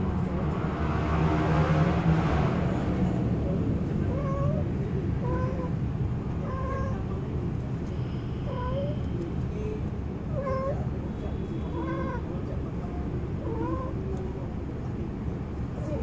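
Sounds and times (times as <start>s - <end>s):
cat yowling: 4.1s - 5.8s, 6.4s - 7.1s, 8.4s - 9.0s, 10.3s - 10.9s, 11.7s - 12.3s, 13.4s - 14.1s.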